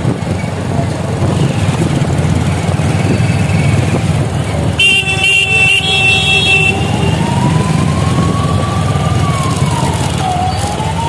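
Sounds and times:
low engine rumble: 0.0s - 11.0s
vehicle horn: 4.8s - 7.6s
siren wailing: 4.8s - 11.0s.

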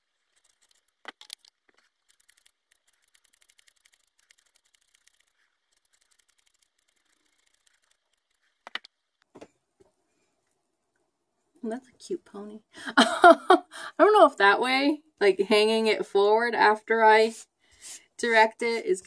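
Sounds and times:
scissors snipping hair: 2.0s - 8.8s.

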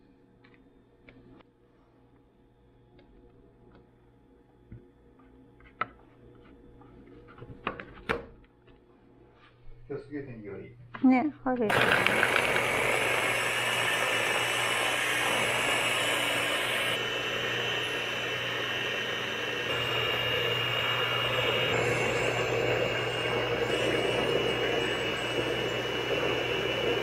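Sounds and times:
small electric motor whirring: 11.7s - 27.0s.

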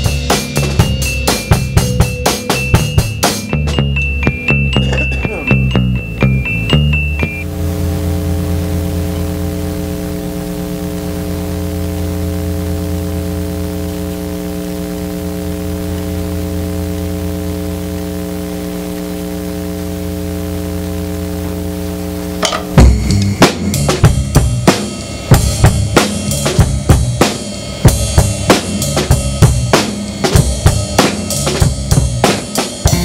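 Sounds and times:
drum kit hits: 0.0s - 8.6s, 22.3s - 33.0s
droning chord: 0.0s - 33.0s
static-like hiss: 7.4s - 33.0s.

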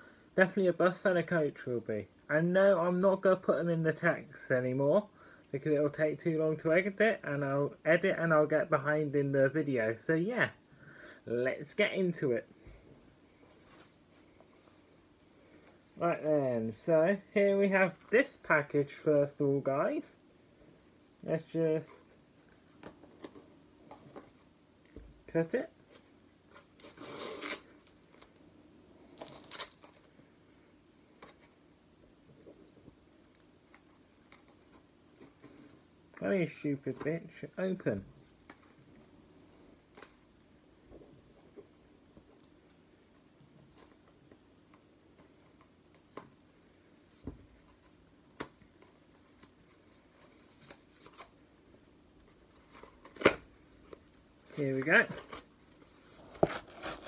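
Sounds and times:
package scratching and rustling: 29.1s - 30.1s, 54.6s - 57.0s.

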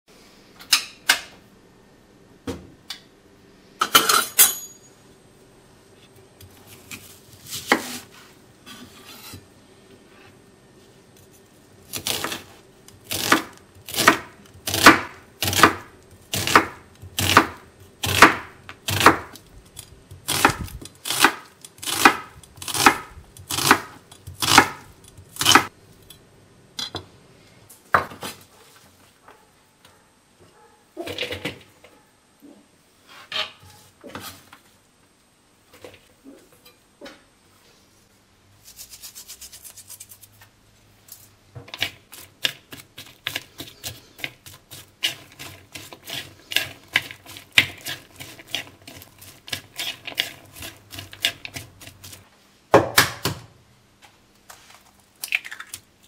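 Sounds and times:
knife slicing onion on wooden board: 6.9s - 8.1s, 11.9s - 19.4s, 20.1s - 25.7s, 41.7s - 52.2s.

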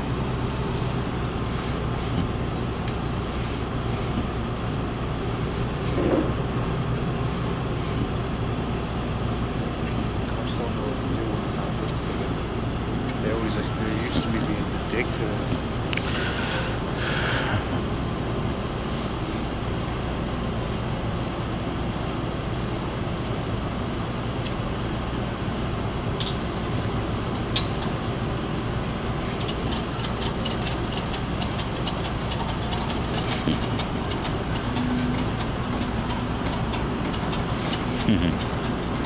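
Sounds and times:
vehicle engines idling: 0.0s - 39.0s
fine clicking: 29.3s - 39.0s.

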